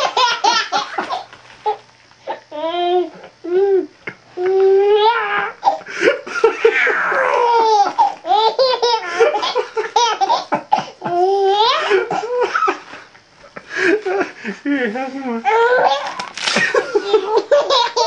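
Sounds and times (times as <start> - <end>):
baby laughing: 0.0 - 1.8, 4.4 - 12.4, 17.0 - 18.0.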